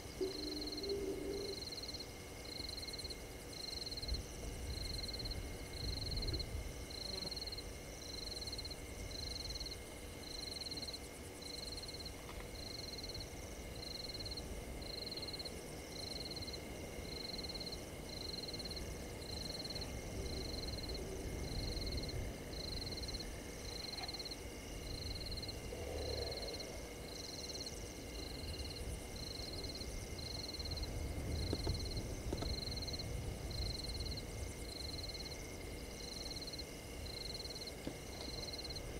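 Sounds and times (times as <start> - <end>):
frog calling: 0.2 - 1.7
low rumble: 24.9 - 27.1.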